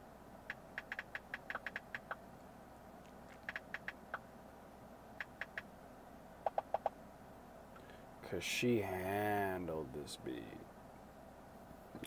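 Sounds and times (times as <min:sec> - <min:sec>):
smartphone keyboard typing clicks: 0:00.5 - 0:02.2, 0:03.3 - 0:04.1, 0:05.2 - 0:05.7, 0:06.4 - 0:06.9.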